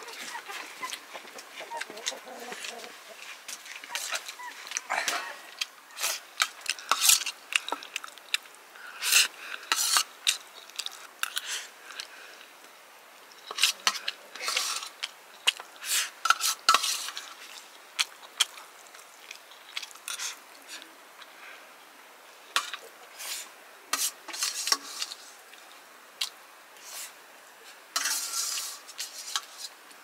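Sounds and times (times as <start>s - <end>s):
metal spoon scraping steel plate: 24.0s - 25.2s, 28.0s - 29.7s.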